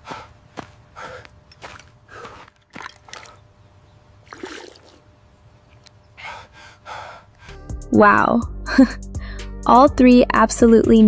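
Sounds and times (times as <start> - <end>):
man breathing hard: 0.0 - 1.4, 2.0 - 2.6, 6.2 - 7.7, 9.0 - 9.6.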